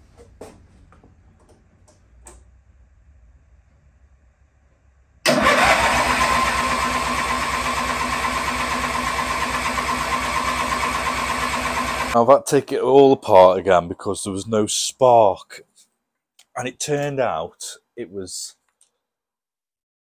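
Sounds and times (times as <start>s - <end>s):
engine cranking without starting: 5.3s - 12.2s.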